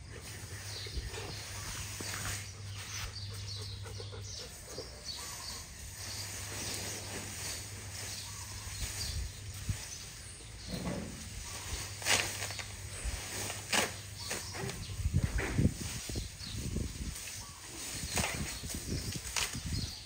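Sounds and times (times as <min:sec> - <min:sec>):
elephant trunk rustling grass: 0:05.2 - 0:20.0.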